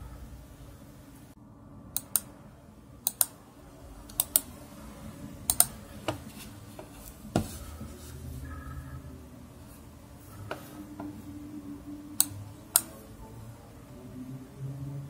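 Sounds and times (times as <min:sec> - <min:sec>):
mouse buttons clicking: 0:02.0 - 0:02.3, 0:03.0 - 0:03.4, 0:04.0 - 0:04.5, 0:05.5 - 0:06.2, 0:12.2 - 0:13.0.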